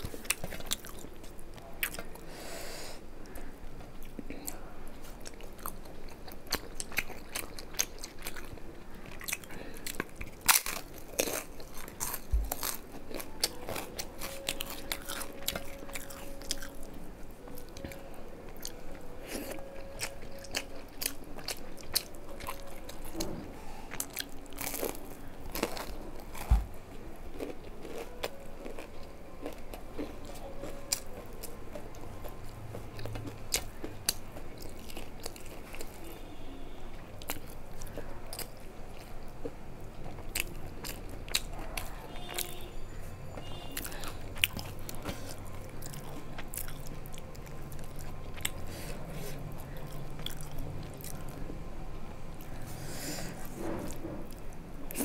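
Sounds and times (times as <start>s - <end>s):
crunching fried food: 0.0s - 2.3s, 3.2s - 23.2s, 23.9s - 42.8s, 43.4s - 51.6s
person chewing food: 0.0s - 2.4s, 3.2s - 42.6s, 43.4s - 51.5s, 52.3s - 55.0s.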